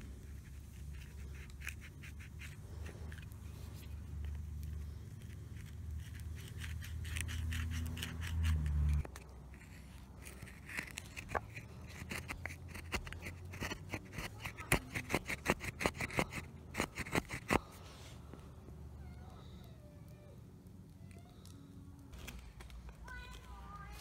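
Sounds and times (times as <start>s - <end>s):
knife scraping wood: 0.0s - 18.0s.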